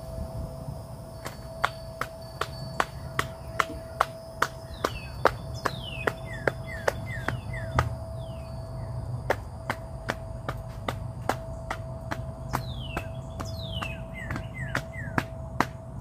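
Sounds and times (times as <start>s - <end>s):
insect drone: 0.0s - 16.0s
bird chirping: 1.2s - 15.8s.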